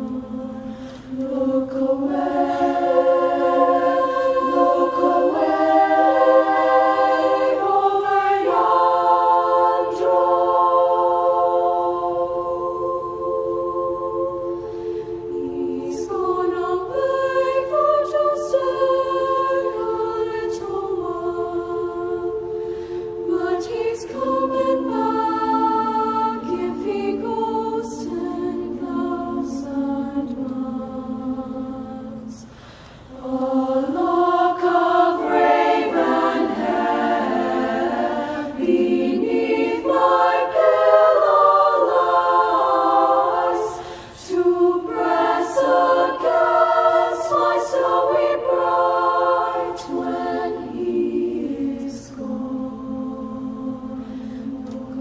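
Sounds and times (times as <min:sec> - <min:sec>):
women's choir singing in harmony: 0:00.0 - 0:55.0.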